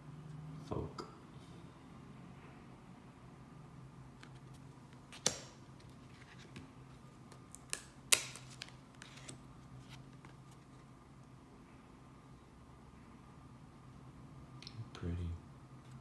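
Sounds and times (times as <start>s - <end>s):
cards snapping and clicking: 5.1s - 5.6s, 7.3s - 9.4s.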